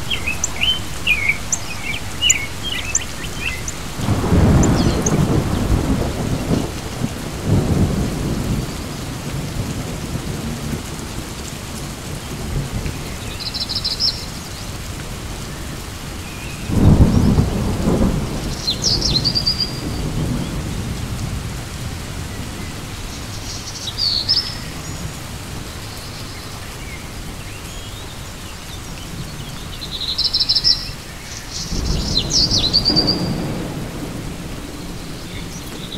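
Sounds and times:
birds chirping: 0:00.0 - 0:09.1
thunder rumbling: 0:00.0 - 0:11.3, 0:16.7 - 0:23.4, 0:31.7 - 0:35.9
steady rain: 0:00.0 - 0:35.9.

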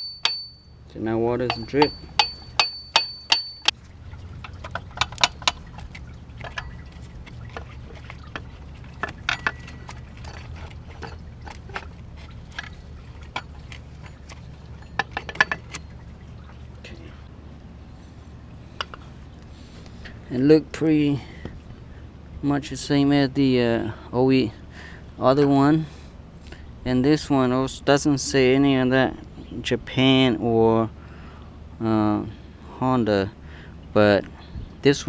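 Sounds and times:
steady low hum: 0:00.0 - 0:35.0
hammer tapping on metal: 0:01.4 - 0:03.8
tools and metal parts clicking: 0:01.4 - 0:03.8, 0:04.4 - 0:05.7, 0:08.3 - 0:11.9, 0:12.5 - 0:16.0.

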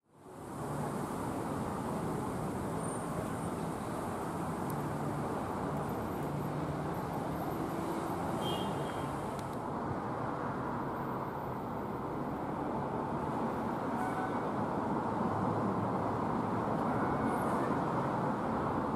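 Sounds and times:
city traffic hum: 0:00.0 - 0:18.9.

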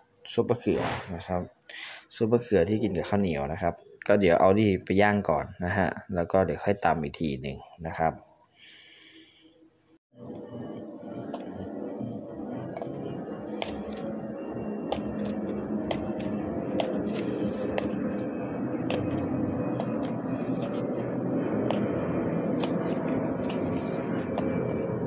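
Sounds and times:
low rumble: 0:10.2 - 0:25.0
fork stabbing eggplant skin: 0:12.7 - 0:14.2, 0:14.9 - 0:24.9.

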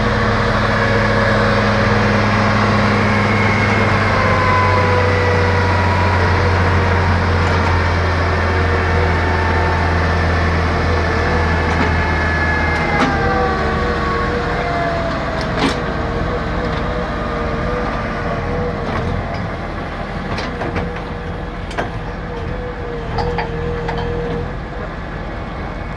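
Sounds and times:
whining tone falling in pitch: 0:00.0 - 0:19.3
drilling rig engine running: 0:00.0 - 0:25.9.

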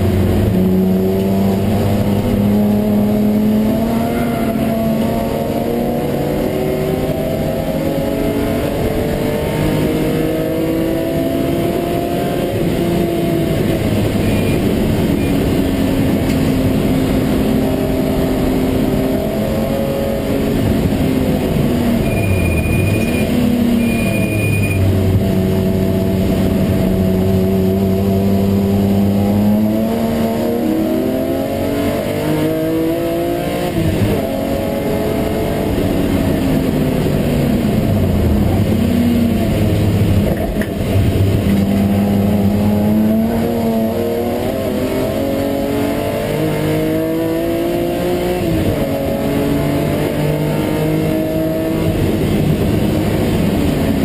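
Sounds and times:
race car engine accelerating: 0:00.0 - 0:54.0
road and wind noise: 0:00.0 - 0:54.0.

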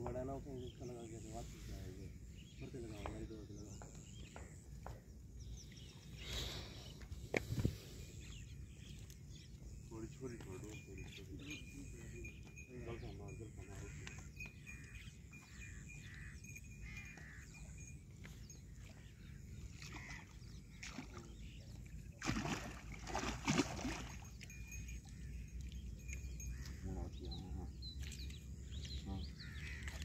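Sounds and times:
fish splashing at the surface: 0:19.7 - 0:21.3, 0:22.1 - 0:24.6.

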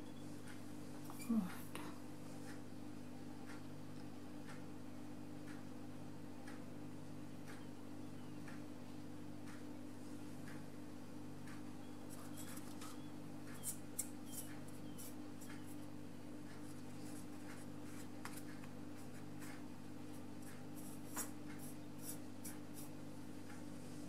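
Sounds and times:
steady low hum: 0:00.0 - 0:24.0
brush tapping and scratching paper: 0:12.1 - 0:23.0.

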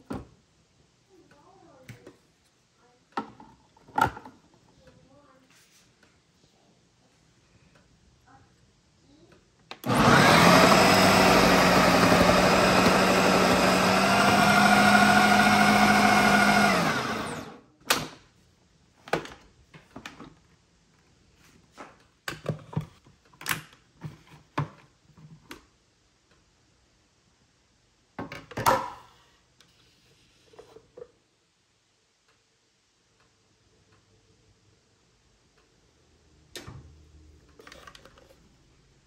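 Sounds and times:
blender motor whining: 0:09.8 - 0:17.6.

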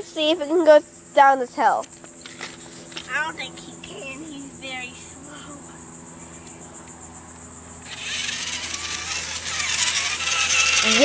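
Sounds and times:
toy truck electric motor whirring: 0:07.8 - 0:11.0.

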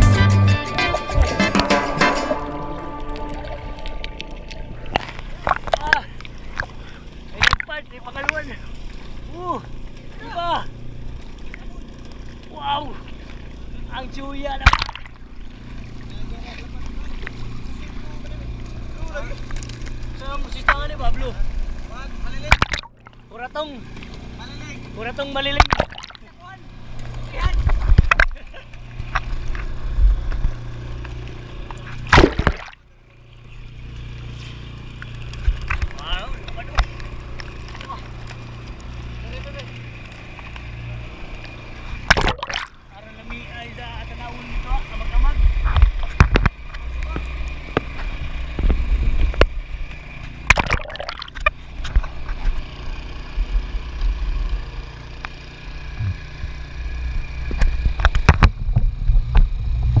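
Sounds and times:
steady low hum: 0:00.0 - 1:00.0
seawater splashing: 0:00.7 - 0:52.6
low rumble: 0:02.2 - 0:07.0, 0:55.9 - 1:00.0
water sloshing against boat hull: 0:03.1 - 0:10.2, 0:25.6 - 0:30.6, 0:31.7 - 0:32.8, 0:41.9 - 0:42.9, 0:50.4 - 0:52.6.

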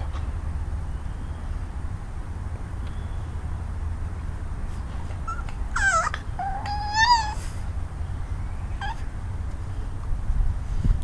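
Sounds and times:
puppy whimpering: 0:05.1 - 0:07.5, 0:08.8 - 0:09.1.

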